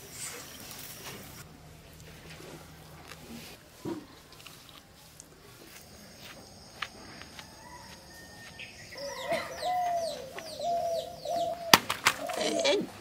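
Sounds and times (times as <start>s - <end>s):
dove cooing: 8.9s - 13.0s.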